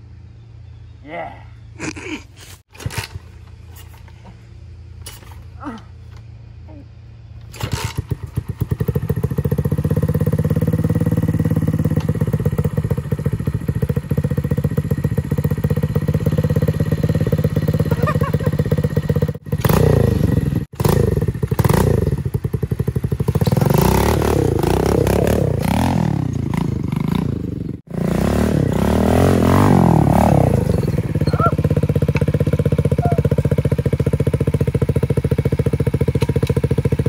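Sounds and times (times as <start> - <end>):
small dirt bike engine idling: 2.7 - 37.0
engine revving in blips: 7.4 - 37.0.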